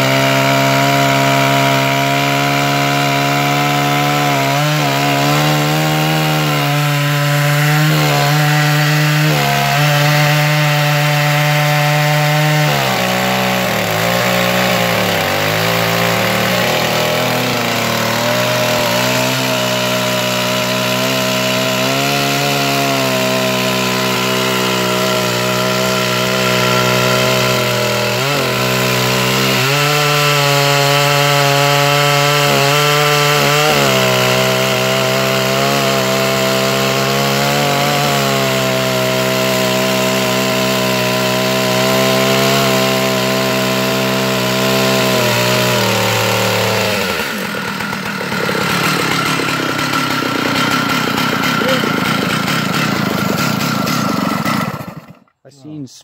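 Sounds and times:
chainsaw cutting a log: 0.0s - 55.8s.

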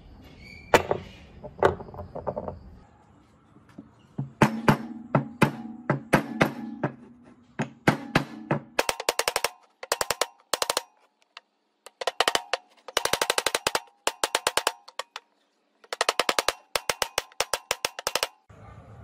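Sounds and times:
small hammer tapping metal: 7.6s - 18.5s.

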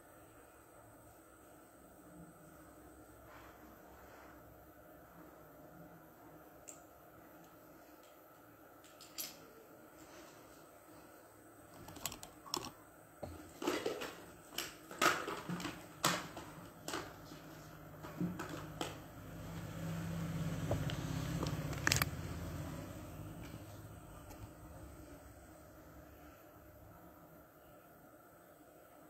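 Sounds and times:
low steady hum: 0.0s - 29.0s
makeup tools clicking and tapping: 20.7s - 22.1s.

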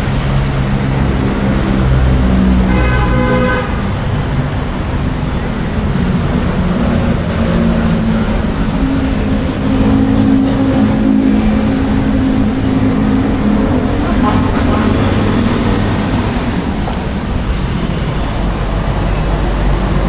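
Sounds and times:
road noise: 0.0s - 20.0s
vehicle engines running: 0.0s - 20.0s.

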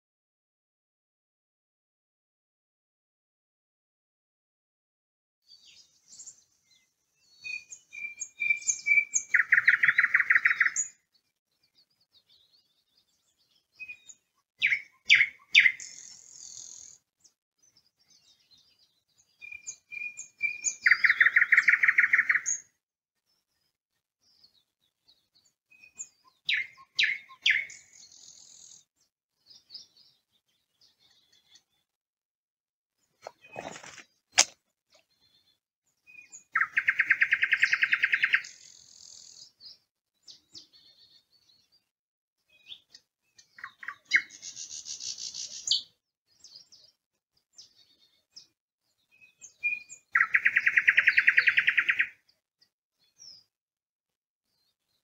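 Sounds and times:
nightingale singing: 5.5s - 22.7s, 25.4s - 28.8s, 35.0s - 41.8s, 42.5s - 46.9s, 49.1s - 52.3s.

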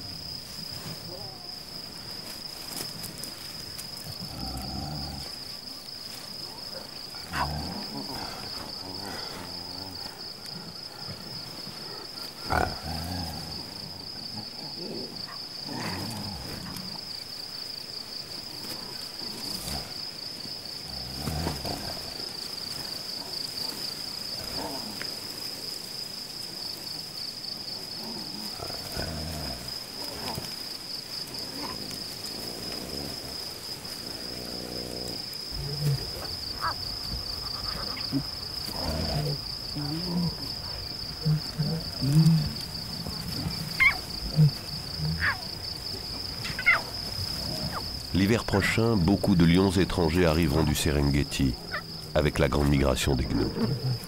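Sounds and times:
high pulsing insect chorus: 0.0s - 54.0s
lion cubs and lioness calling: 4.0s - 17.5s, 31.3s - 54.0s.

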